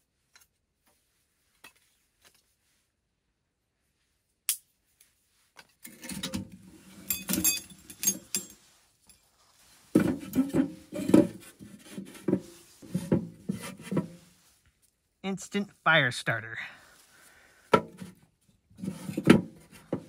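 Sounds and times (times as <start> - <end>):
wood clattering on thin metal: 5.8 - 9.2, 9.9 - 14.2.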